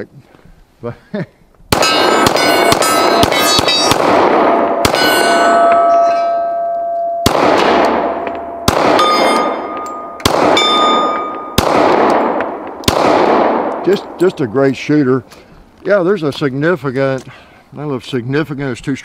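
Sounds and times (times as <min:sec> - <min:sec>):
pistol shots: 0:01.7 - 0:06.5, 0:07.2 - 0:14.5
steel targets ringing: 0:01.8 - 0:03.9, 0:04.6 - 0:12.6.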